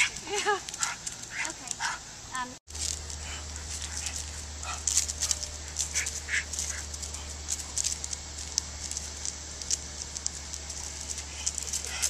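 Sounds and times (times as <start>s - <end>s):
scuffs and clicks: 2.7s - 12.0s.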